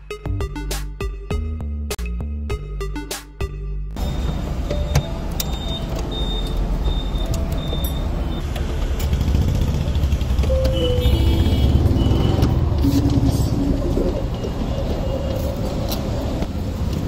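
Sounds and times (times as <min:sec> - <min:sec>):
low rumble of motor vehicles: 0:03.9 - 0:17.0.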